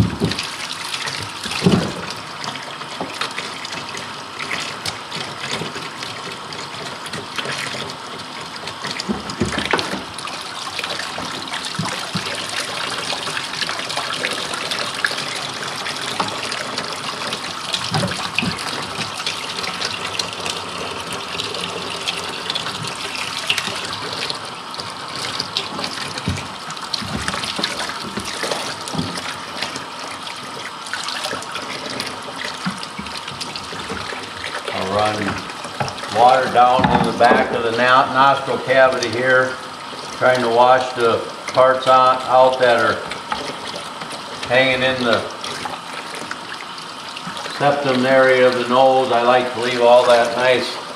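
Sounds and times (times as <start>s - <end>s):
water running: 0.0s - 50.9s.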